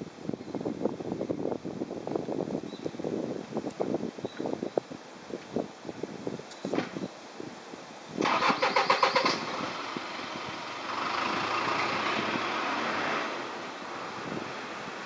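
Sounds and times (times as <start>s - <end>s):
engine cranking and starting: 8.2s - 13.4s.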